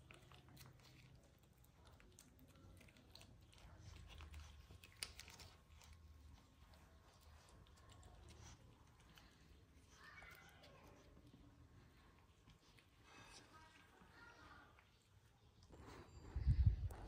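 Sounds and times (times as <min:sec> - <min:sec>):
kitten licking wet clicks: 0:00.0 - 0:13.0.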